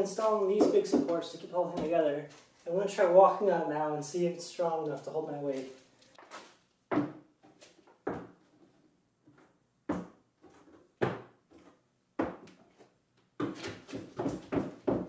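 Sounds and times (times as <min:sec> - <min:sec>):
footsteps on wooden ramp: 0:00.2 - 0:02.1, 0:06.2 - 0:08.4, 0:13.4 - 0:15.0.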